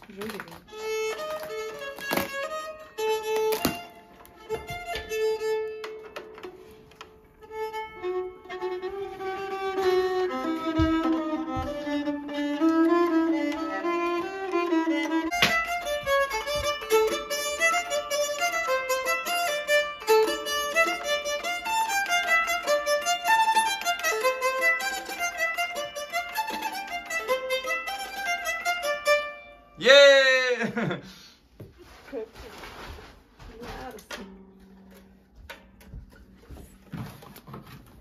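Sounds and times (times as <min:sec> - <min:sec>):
bowed keyed fiddle melody: 0:00.2 - 0:29.9.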